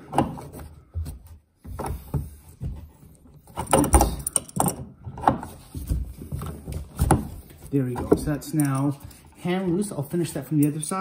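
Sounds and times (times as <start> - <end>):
handling and scraping: 0.0 - 11.0
wrench metal clicks and knocks: 3.5 - 4.9.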